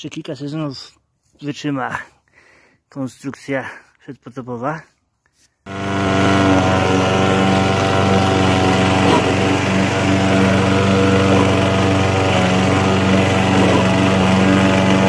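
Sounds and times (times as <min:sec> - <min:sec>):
lawn mower engine running: 0:05.7 - 0:15.0.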